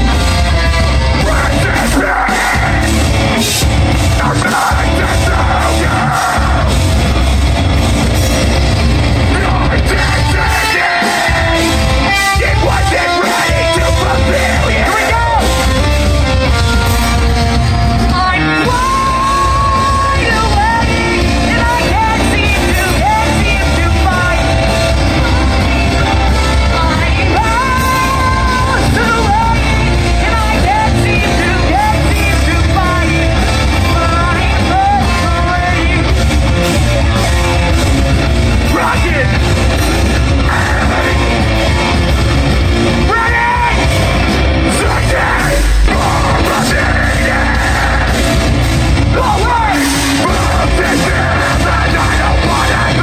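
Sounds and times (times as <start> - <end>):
bass guitar: 0.0 - 53.0
distorted electric guitar: 0.0 - 53.0
drums: 0.0 - 53.0
person singing melodic lines: 9.2 - 16.0, 17.7 - 37.7, 49.0 - 53.0.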